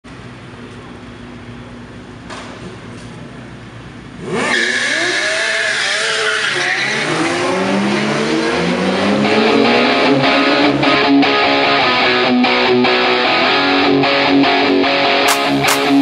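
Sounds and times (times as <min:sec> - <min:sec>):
motorcycle engines idling: 0:00.1 - 0:05.7
sport bike revving and accelerating: 0:04.1 - 0:11.1.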